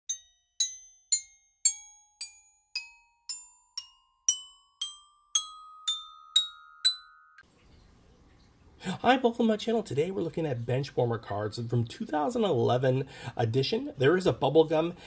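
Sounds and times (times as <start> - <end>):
bell-like struck notes: 0.1 - 7.4.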